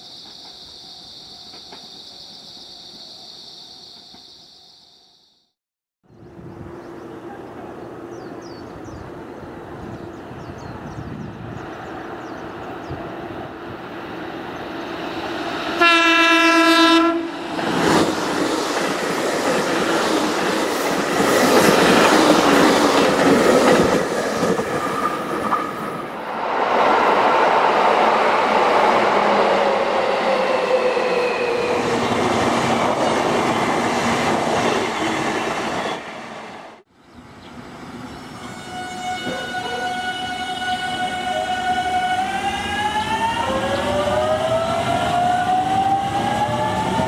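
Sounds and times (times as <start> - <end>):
train running noise: 0.0 - 4.7, 6.3 - 47.0
train horn: 15.7 - 17.4, 38.4 - 47.0.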